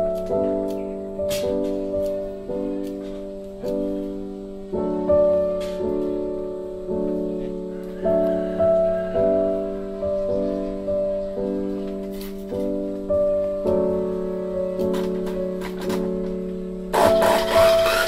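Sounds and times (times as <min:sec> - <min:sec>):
slow piano music: 0:00.0 - 0:18.0.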